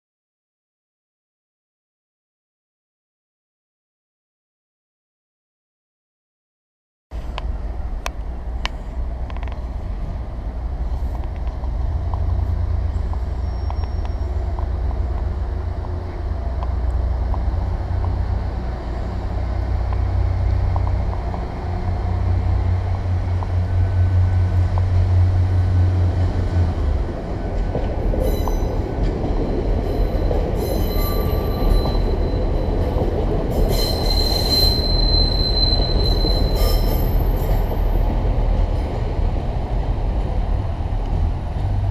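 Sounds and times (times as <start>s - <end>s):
train running hum: 7.1s - 41.9s
wheels rumbling on rail: 7.1s - 41.9s
wheel squeals: 12.9s - 14.5s, 29.8s - 32.6s, 33.6s - 37.9s.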